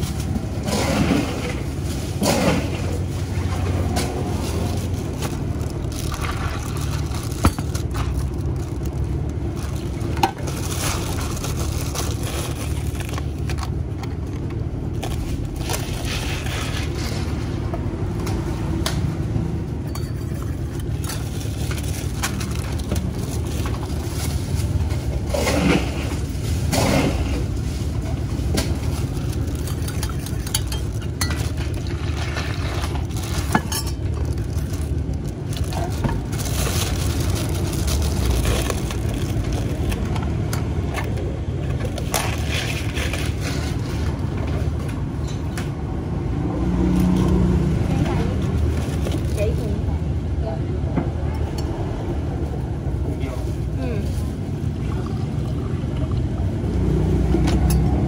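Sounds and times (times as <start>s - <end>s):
plastic bag of ice rustling: 0.0s - 17.7s, 19.8s - 44.8s, 46.9s - 50.0s, 53.0s - 54.9s
spoon clinking in metal cup: 19.8s - 20.8s, 33.5s - 34.1s.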